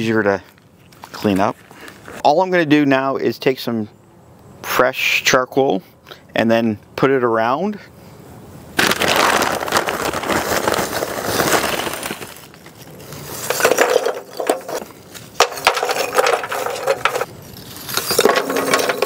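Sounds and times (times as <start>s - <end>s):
charcoal rattling and crunching: 8.8s - 19.0s
charcoal clinking on metal tray: 17.9s - 19.0s.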